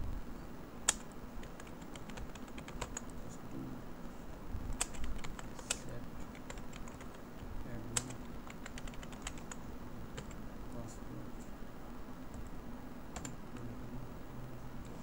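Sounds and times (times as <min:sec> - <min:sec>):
computer keyboard typing: 0:00.9 - 0:03.2, 0:04.8 - 0:10.4, 0:13.1 - 0:13.7.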